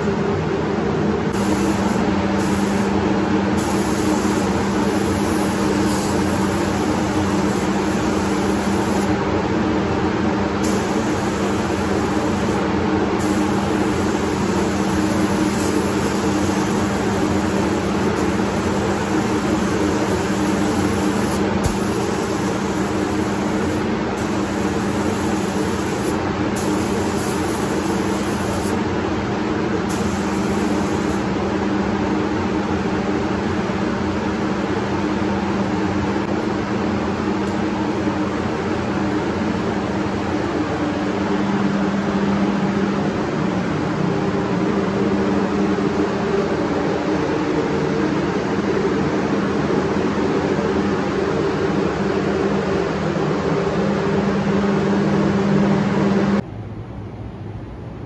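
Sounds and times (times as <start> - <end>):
fans humming: 0.0 - 58.0
paint spray gun hissing: 1.3 - 3.0, 3.6 - 9.2, 10.6 - 28.8, 29.9 - 31.3.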